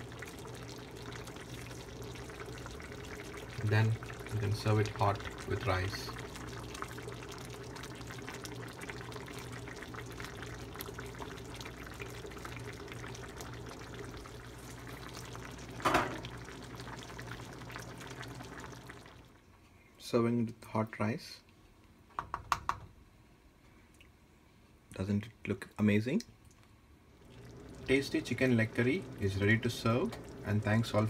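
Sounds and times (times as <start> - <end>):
curry bubbling in a pan: 0.0 - 19.4, 27.1 - 31.0.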